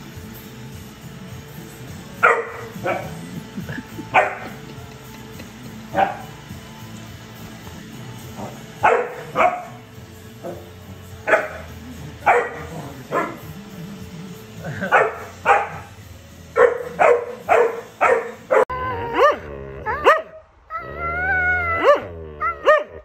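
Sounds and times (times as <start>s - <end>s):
background music: 0.0s - 23.0s
puppy barking: 2.2s - 3.3s, 4.1s - 4.8s, 5.4s - 6.4s, 8.4s - 9.8s, 10.4s - 13.6s, 14.7s - 16.0s, 16.6s - 20.4s, 21.8s - 23.0s.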